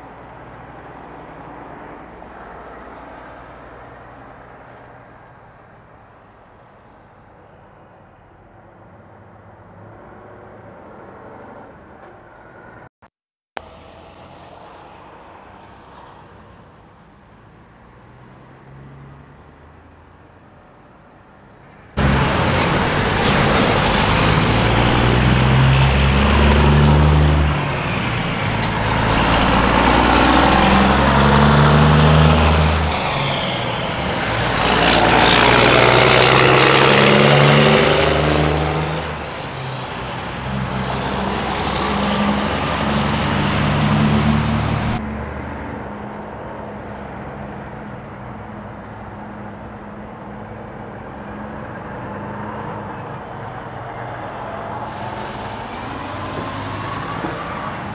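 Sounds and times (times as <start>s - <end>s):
diesel truck accelerating through gears: 0.0s - 6.3s, 21.6s - 57.9s.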